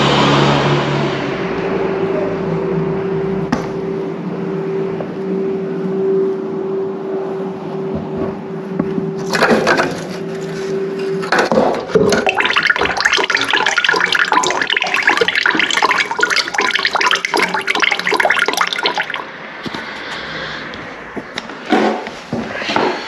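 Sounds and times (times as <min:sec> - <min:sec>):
water splashing into bucket: 0:09.3 - 0:10.0, 0:11.3 - 0:19.9.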